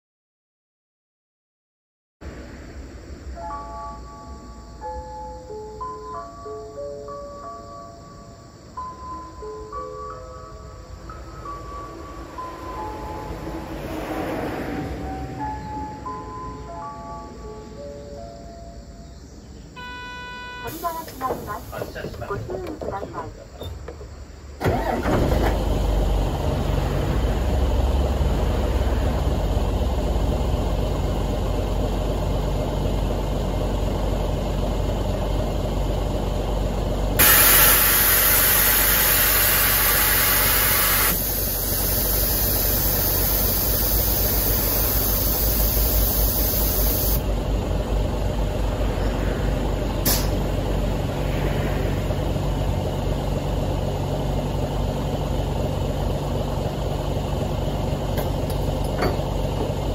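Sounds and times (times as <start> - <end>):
bus engine idling: 2.3 - 14.3, 14.9 - 59.9
air suspension hissing: 20.7 - 25.1, 37.2 - 47.3, 49.6 - 53.0
sharp click: 50.1 - 50.4.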